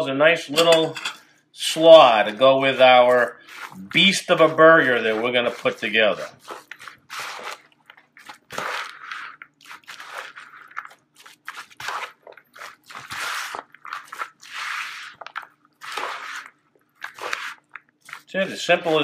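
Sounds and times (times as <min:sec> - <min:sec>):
spoon stirring wet coleslaw: 0:01.7 - 0:19.0.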